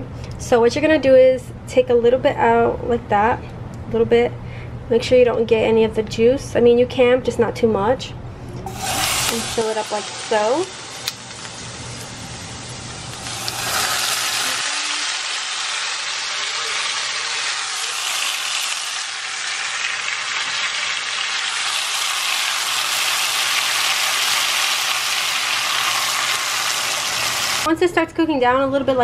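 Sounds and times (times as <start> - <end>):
beans sizzling in a pan: 8.7 - 27.7.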